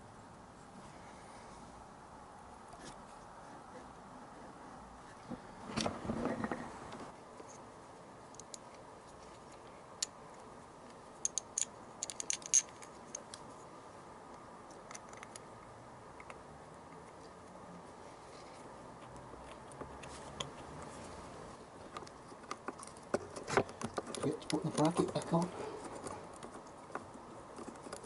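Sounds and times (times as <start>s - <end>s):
rubbing and handling noise: 17.0s - 28.0s.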